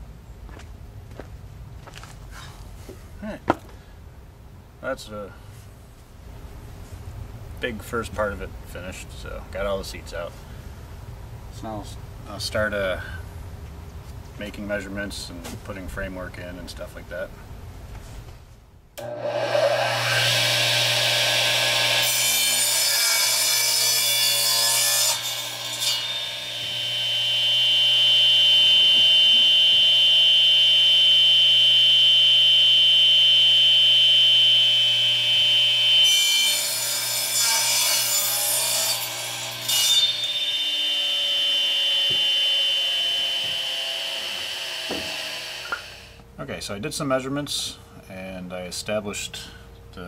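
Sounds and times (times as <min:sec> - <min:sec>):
saw blade winding down: 0:19.0 - 0:22.6, 0:41.2 - 0:46.2
saw motor whining: 0:19.0 - 0:23.4, 0:25.1 - 0:37.4, 0:38.8 - 0:46.2
saw cutting through wood: 0:19.0 - 0:46.1.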